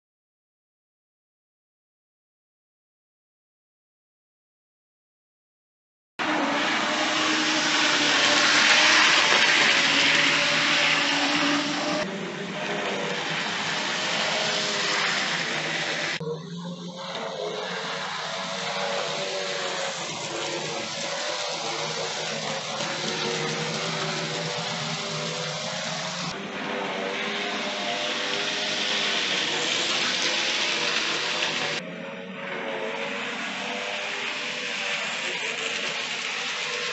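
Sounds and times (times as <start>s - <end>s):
model train motor whirring: 6.4s - 16.2s, 17.6s - 26.3s, 27.0s - 31.8s, 33.6s - 36.9s
wheels rattling on rail: 6.5s - 12.0s.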